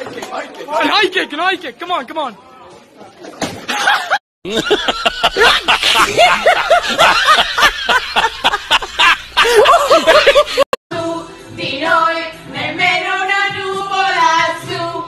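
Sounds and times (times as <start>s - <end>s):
high-pitched cackling laughter: 3.7s - 10.7s
song with long-held sung notes: 10.9s - 15.0s.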